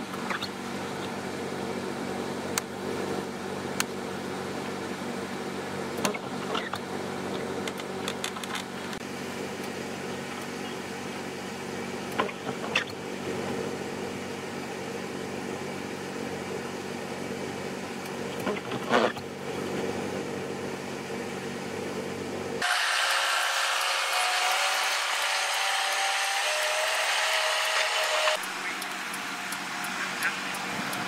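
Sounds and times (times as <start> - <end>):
steady low hum: 26.8 - 31.0.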